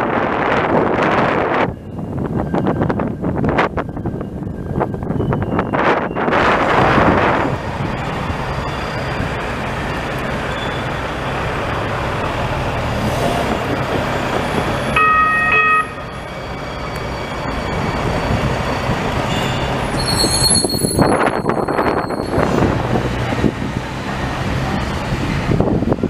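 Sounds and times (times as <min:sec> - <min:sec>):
tram rumbling: 0:00.0 - 0:26.0
high-pitched squeal: 0:03.7 - 0:11.7, 0:13.0 - 0:23.1.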